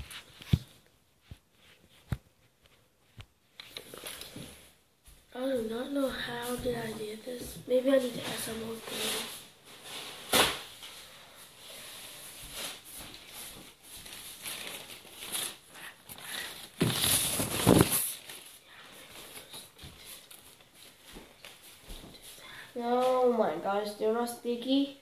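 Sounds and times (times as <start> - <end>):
soft clicks and rustles: 0.0 - 4.8, 12.6 - 23.2.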